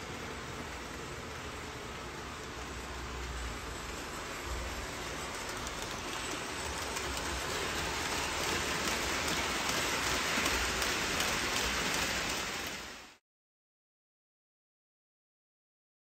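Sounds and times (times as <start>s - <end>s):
model train rumbling on rails: 0.0s - 13.2s
wheels clicking over rail joints: 1.7s - 13.0s.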